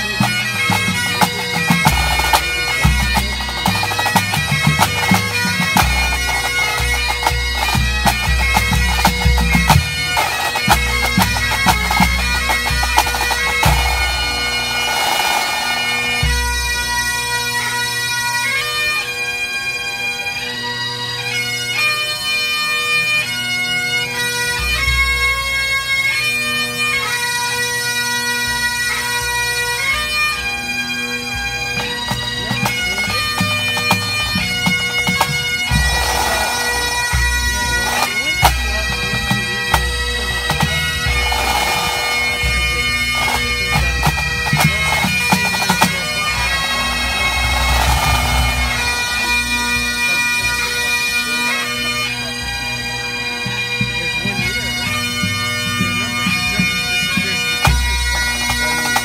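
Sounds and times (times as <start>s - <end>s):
bagpipes playing over drones: 0.0s - 59.0s
snare drumming: 13.0s - 16.3s, 35.7s - 36.9s, 44.5s - 49.4s
low drumming: 44.6s - 50.3s.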